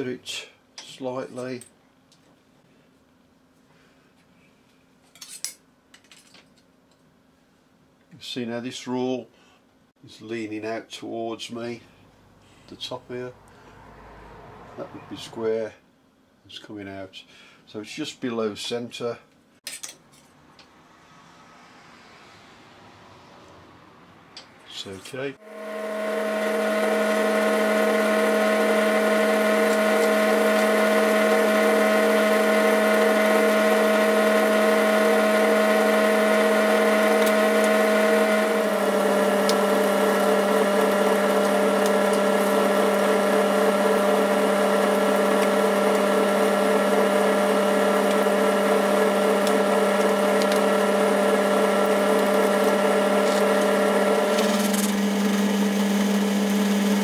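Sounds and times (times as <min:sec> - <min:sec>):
tool cutting aluminium: 0:25.4 - 0:55.2
lathe motor whine: 0:25.4 - 0:57.0.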